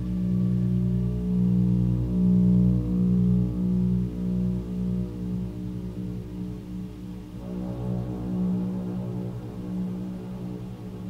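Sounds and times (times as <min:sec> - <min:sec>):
pulsing synthesizer drone: 0:07.3 - 0:11.0.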